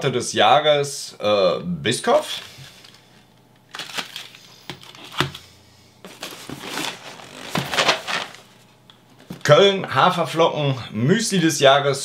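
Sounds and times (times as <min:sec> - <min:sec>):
items knocking as set down: 0:06.1 - 0:08.4
cardboard and wrapping rustling: 0:06.1 - 0:09.5.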